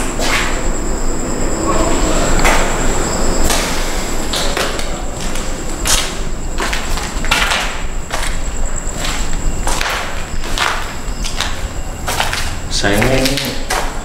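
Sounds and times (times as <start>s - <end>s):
footsteps on gritty concrete: 4.3s - 14.0s.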